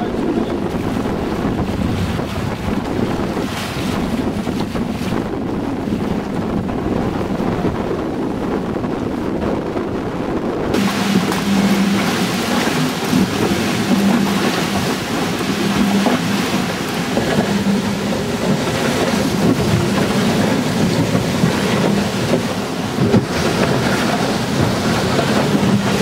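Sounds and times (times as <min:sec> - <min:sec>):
water rushing past hulls: 0:00.0 - 0:26.0
wind buffeting microphone: 0:00.0 - 0:26.0
low hum: 0:05.4 - 0:22.4.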